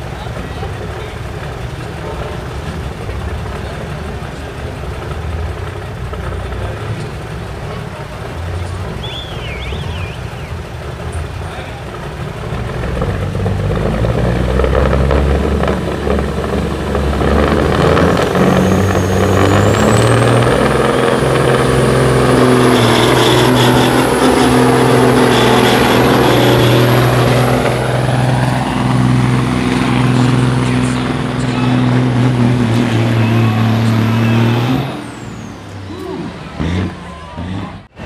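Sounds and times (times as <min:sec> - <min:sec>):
diesel truck engine at full throttle: 0:00.0 - 0:38.0
turbo whistle: 0:09.0 - 0:10.6.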